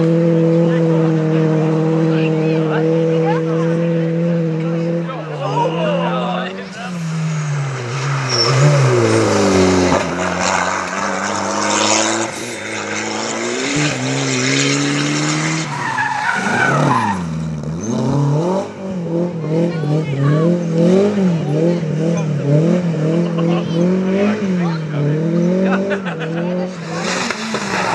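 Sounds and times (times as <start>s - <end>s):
rally car engines revving: 0.0s - 27.9s
car passing by: 26.6s - 27.9s.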